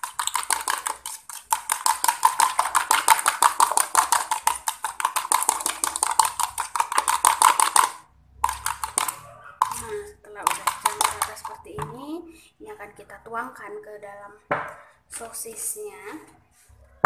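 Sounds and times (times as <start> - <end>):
fork beating eggs in jug: 0.0 - 11.8.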